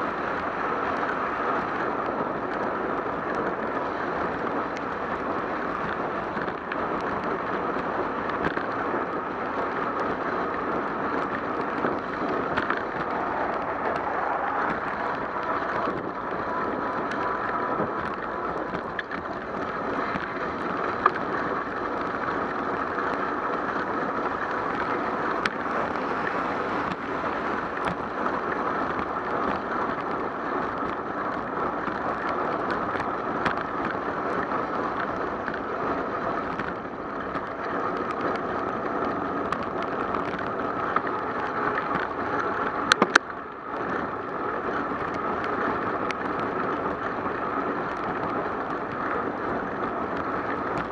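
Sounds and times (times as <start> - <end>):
car traffic: 0.0 - 50.9
wind on microphone: 0.0 - 50.9
tyre hiss on wet road: 24.4 - 27.8.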